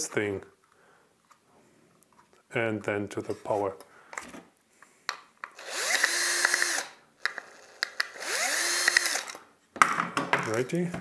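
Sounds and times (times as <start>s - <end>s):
cordless drill whining: 5.6s - 9.4s.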